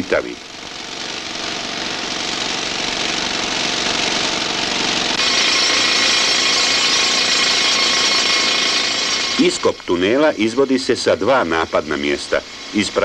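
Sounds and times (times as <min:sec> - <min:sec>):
rock drill hammering: 0:00.0 - 0:10.2.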